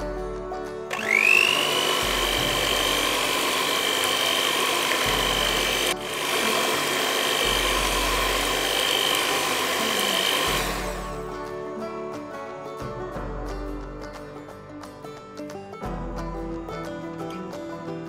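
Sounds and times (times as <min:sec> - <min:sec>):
electric hand mixer whine: 0:00.9 - 0:11.2.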